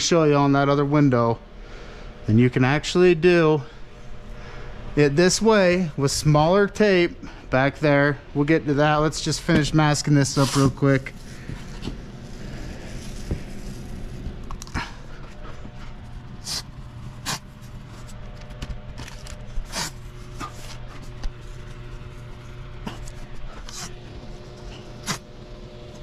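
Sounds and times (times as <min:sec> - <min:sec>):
low hum: 0:00.0 - 0:26.0
masking tape tearing: 0:16.4 - 0:18.1, 0:19.0 - 0:20.8, 0:25.0 - 0:25.3.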